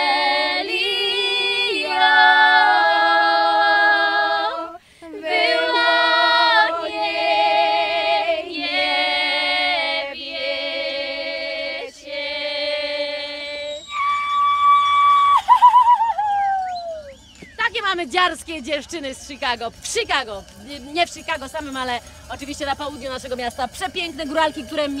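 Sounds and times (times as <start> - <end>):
women singing a cappella folk song: 0.0 - 14.0.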